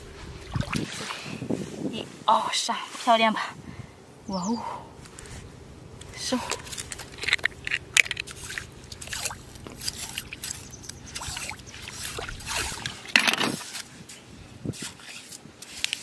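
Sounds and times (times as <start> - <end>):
water sloshing and splashing: 0.0 - 1.5, 6.1 - 14.0
shell scraping: 6.0 - 13.9.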